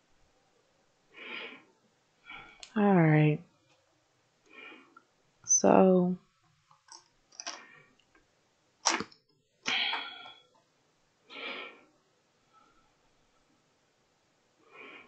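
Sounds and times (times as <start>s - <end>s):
person's breathy vocal noises: 9.7s - 10.4s.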